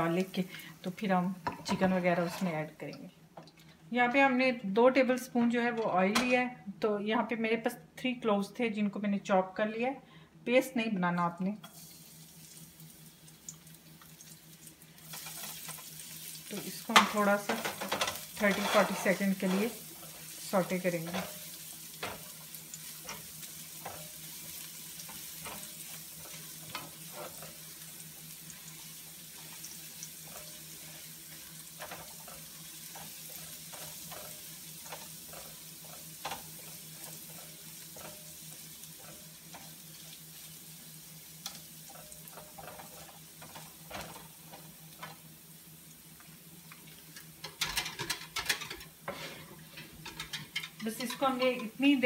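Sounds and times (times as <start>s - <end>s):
garlic sizzling in oil: 0.0s - 2.9s, 11.7s - 52.0s
spatula scraping a pan: 1.5s - 2.6s, 16.5s - 40.5s, 41.4s - 45.2s, 47.4s - 51.8s.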